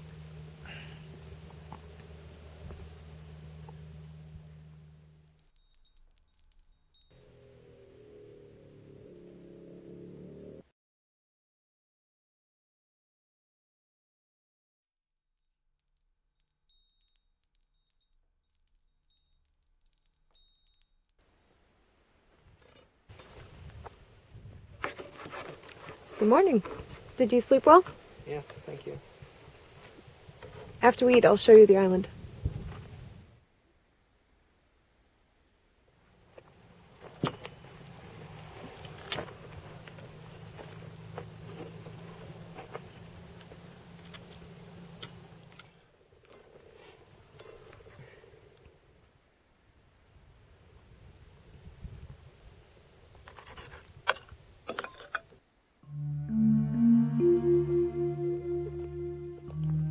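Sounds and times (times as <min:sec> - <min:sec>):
steady low hum: 0:00.0 - 0:05.6
soft outdoor hiss: 0:00.0 - 0:10.6, 0:15.4 - 0:59.9
wind chimes tinkling: 0:03.6 - 0:08.1, 0:15.4 - 0:21.8.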